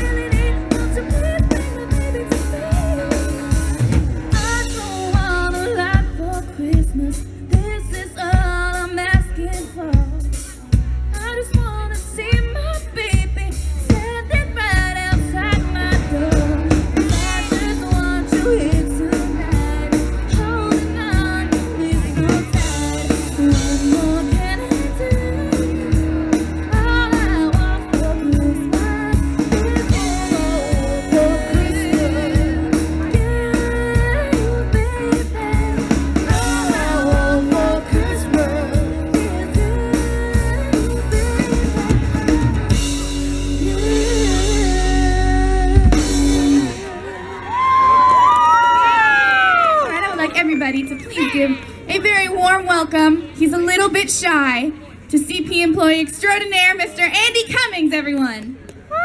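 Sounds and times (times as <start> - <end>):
woman singing: 0.0 - 42.9, 43.5 - 46.7
drum kit beat: 0.0 - 47.0
guitar: 0.0 - 59.0.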